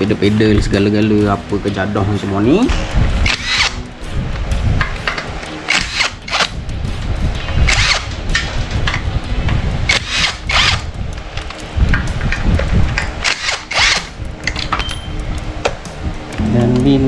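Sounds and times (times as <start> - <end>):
metallic clanks and rattles: 4.8 - 6.5.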